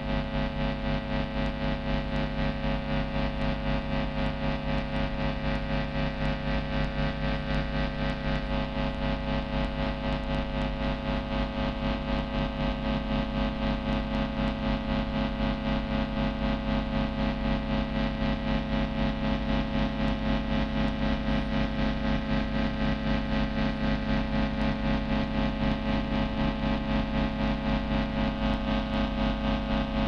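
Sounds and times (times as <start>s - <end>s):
distorted electric guitar drone: 21.5s - 30.0s.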